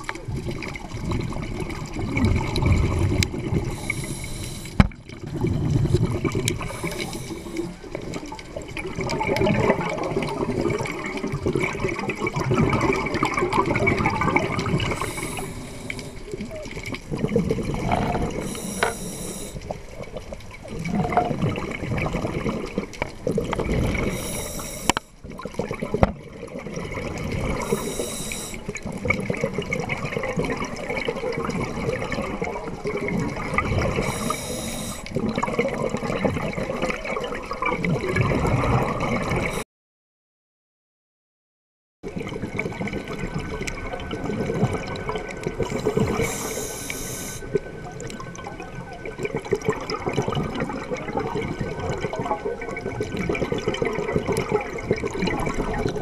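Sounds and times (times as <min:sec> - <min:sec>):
gurgling exhaled bubbles: 0:00.0 - 0:39.6, 0:42.1 - 0:56.0
regulator inhale hiss: 0:03.7 - 0:04.8, 0:06.6 - 0:07.8, 0:14.9 - 0:16.3, 0:18.4 - 0:19.6, 0:24.1 - 0:25.1, 0:27.6 - 0:28.7, 0:34.0 - 0:35.1, 0:45.8 - 0:47.5.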